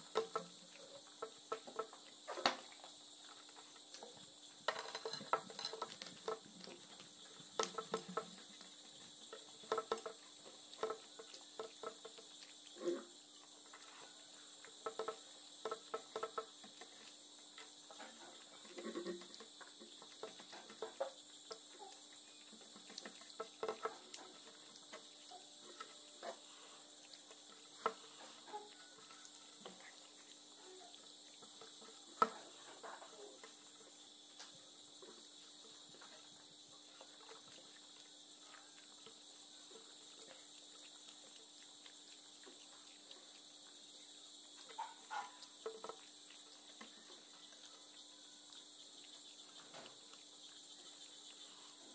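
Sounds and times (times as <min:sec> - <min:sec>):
crickets chirring: 0:00.0 - 0:51.9
wet chewing and lip-smacking: 0:37.2 - 0:51.8.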